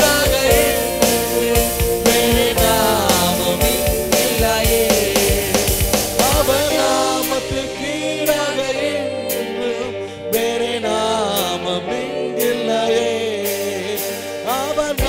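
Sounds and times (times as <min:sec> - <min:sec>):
drum beat: 0:00.0 - 0:07.6
keyboard chords: 0:00.0 - 0:15.0
man singing into microphone: 0:00.0 - 0:15.0.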